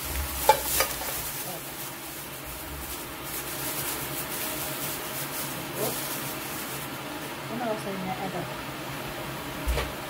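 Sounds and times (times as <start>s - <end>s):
plastic bag rustling: 0.0s - 8.0s
steady low hiss and hum: 0.0s - 10.0s.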